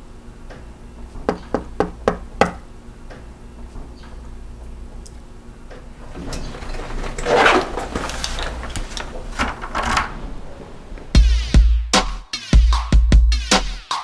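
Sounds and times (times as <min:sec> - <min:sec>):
door latch rattling and clattering: 0:09.2 - 0:10.4.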